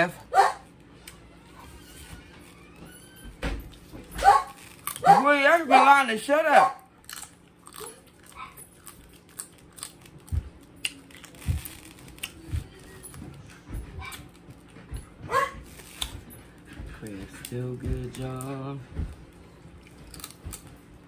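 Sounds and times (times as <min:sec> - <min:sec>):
crab shells cracking: 0:04.5 - 0:05.0, 0:07.0 - 0:12.4, 0:19.9 - 0:20.8.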